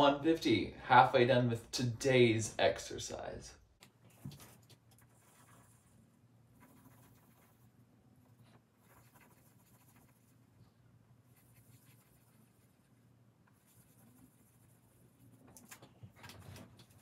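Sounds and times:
pencil scratching on paper: 0:04.1 - 0:10.5, 0:11.3 - 0:15.8.

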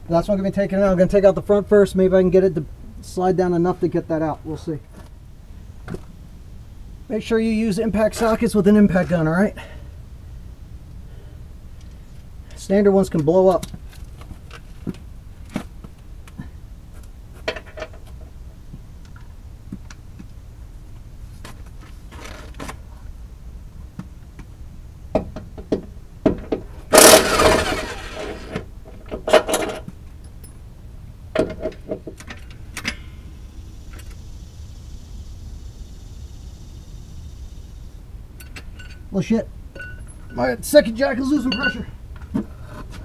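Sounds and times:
impact wrench rattling: 0:26.4 - 0:29.9
metal tools clinking: 0:38.4 - 0:39.1, 0:39.8 - 0:40.5, 0:41.2 - 0:41.9.

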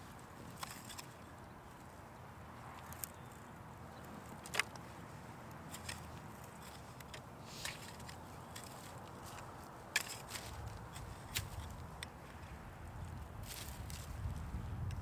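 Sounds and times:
hand tool scraping soil: 0:05.7 - 0:11.9.

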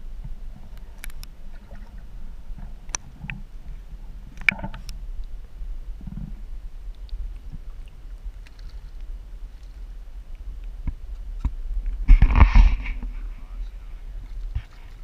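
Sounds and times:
muffled water sloshing: 0:00.0 - 0:15.0.

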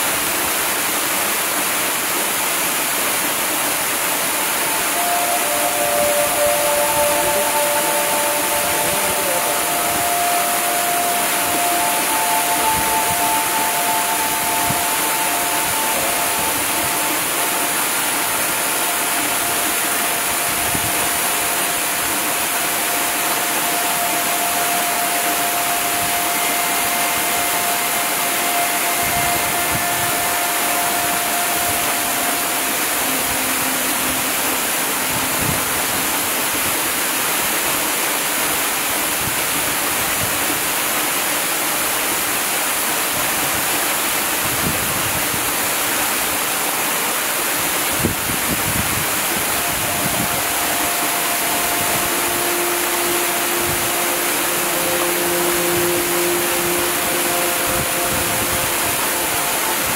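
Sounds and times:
rushing water noise: 0:00.0 - 0:59.9
faint held tones: 0:04.3 - 0:37.2, 0:49.2 - 0:59.9.

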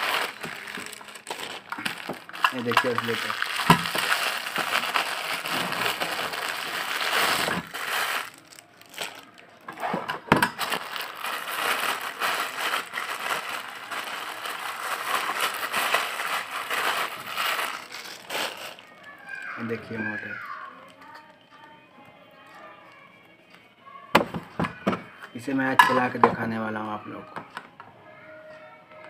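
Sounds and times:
plastic bag crinkling: 0:00.0 - 0:19.7.

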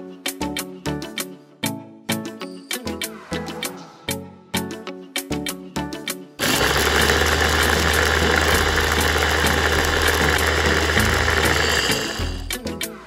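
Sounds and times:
electric blender running: 0:06.4 - 0:12.6.

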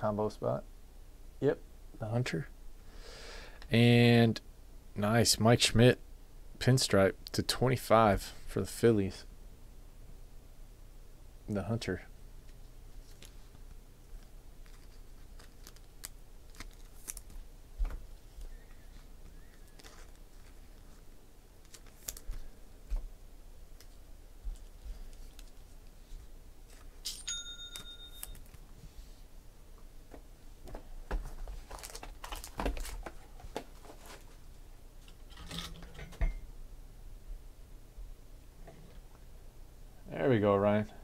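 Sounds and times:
wrapping crinkling and tearing: 0:14.2 - 0:17.5, 0:19.4 - 0:21.0, 0:21.6 - 0:22.5, 0:23.8 - 0:26.0, 0:31.6 - 0:34.3
electronic chime: 0:27.2 - 0:28.4.

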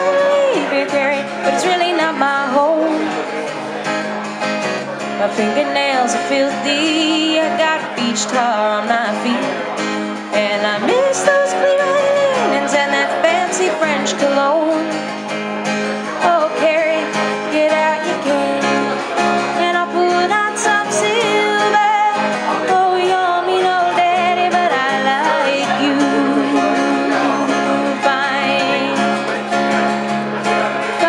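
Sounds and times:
woman singing: 0:00.0 - 0:03.2, 0:05.2 - 0:09.7, 0:10.3 - 0:15.0, 0:16.2 - 0:18.9, 0:19.5 - 0:29.2
strummed acoustic guitar: 0:00.0 - 0:31.0.

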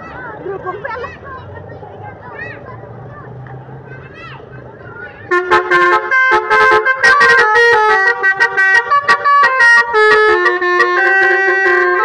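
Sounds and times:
air horn playing a tune: 0:05.3 - 0:12.0.

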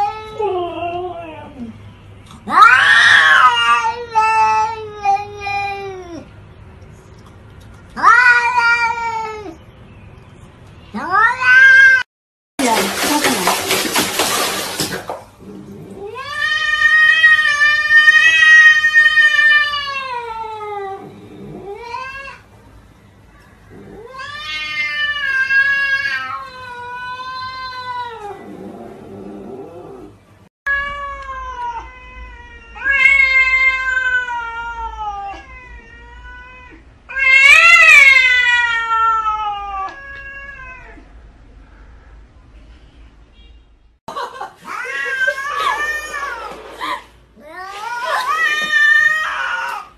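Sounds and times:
cats yowling: 0:02.5 - 0:06.3, 0:08.0 - 0:09.6, 0:11.0 - 0:12.0, 0:15.8 - 0:22.4, 0:23.7 - 0:30.1, 0:30.7 - 0:41.1, 0:44.6 - 0:49.9.

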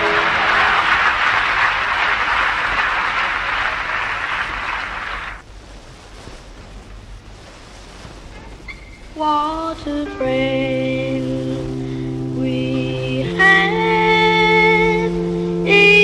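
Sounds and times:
song with held note: 0:00.0 - 0:01.2, 0:09.8 - 0:16.0
audience applause: 0:00.0 - 0:05.4
vinyl record surface hiss: 0:00.0 - 0:16.0.

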